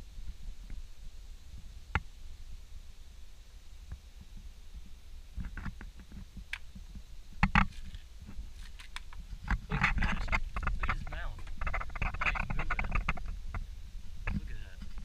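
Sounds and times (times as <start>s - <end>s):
camera handling rumble: 5.4s - 15.0s.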